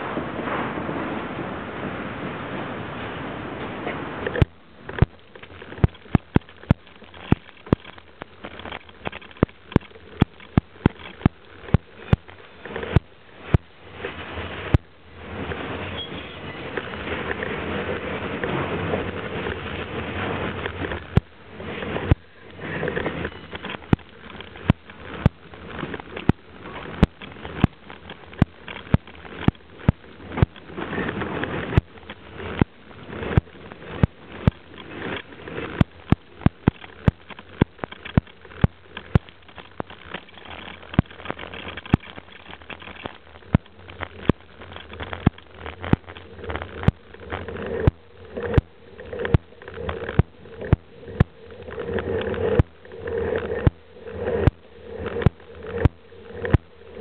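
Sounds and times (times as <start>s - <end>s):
steady rushing noise: 0.0s - 57.0s
camera knocks and clicks: 4.2s - 13.7s.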